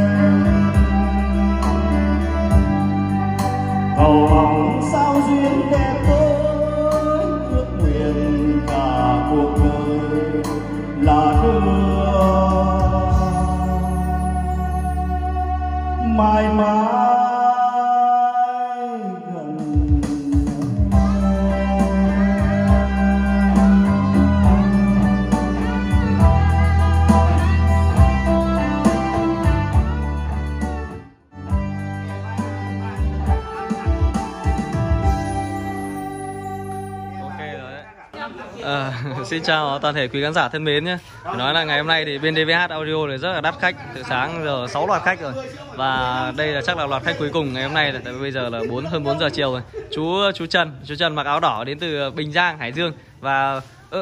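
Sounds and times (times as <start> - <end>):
guitar melody with bending notes: 0.0 - 16.0, 20.9 - 37.7
backing track with low beat: 0.0 - 16.7, 19.4 - 37.6
sustained bass line: 0.0 - 17.0, 19.6 - 37.6
man singing karaoke: 0.0 - 29.9.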